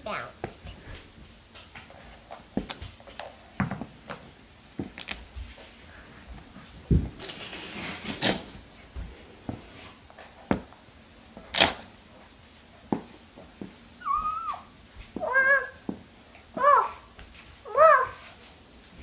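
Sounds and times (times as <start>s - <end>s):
short meow-like call: 14.0s - 14.7s.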